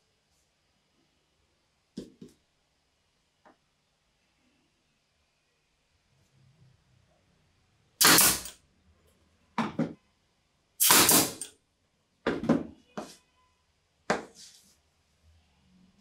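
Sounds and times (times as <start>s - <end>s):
nail gun firing: 8.0s - 8.6s, 10.8s - 11.5s.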